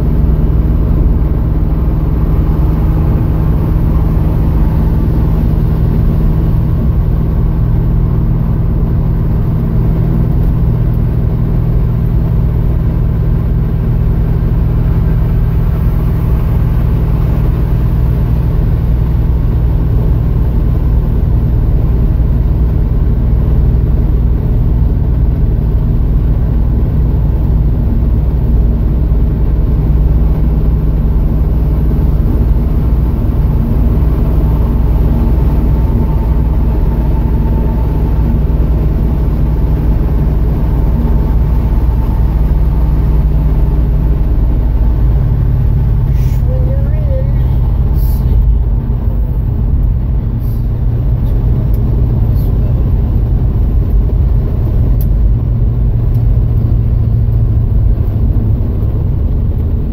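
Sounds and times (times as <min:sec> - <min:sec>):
car engine and road drone: 0:00.0 - 0:59.9.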